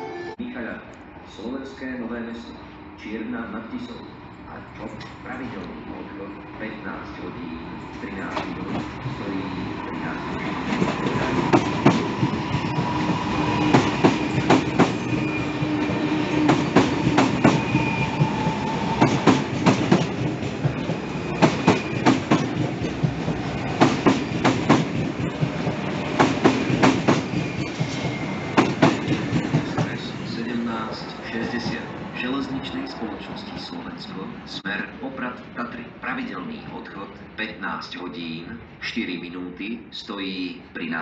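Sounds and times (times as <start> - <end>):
train rumble: 1.0 - 37.0
train wheels clacking over rail joints: 10.7 - 17.9, 19.0 - 30.1.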